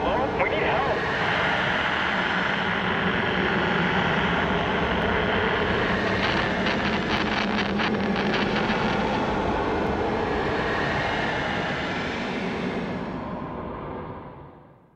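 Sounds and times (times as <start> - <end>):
engine drone: 0.0 - 14.4
rapid crackle: 6.0 - 9.3.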